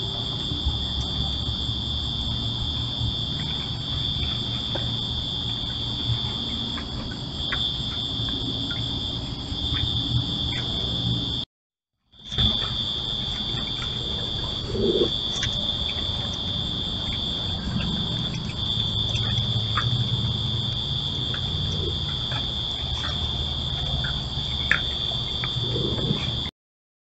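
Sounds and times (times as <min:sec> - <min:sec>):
insect trilling: 0:12.2 - 0:26.5.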